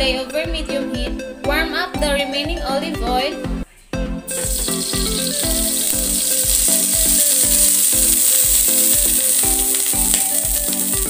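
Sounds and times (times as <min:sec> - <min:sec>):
background music with steady beat: 0:00.0 - 0:11.0
oil sizzling in a skillet: 0:04.3 - 0:11.0.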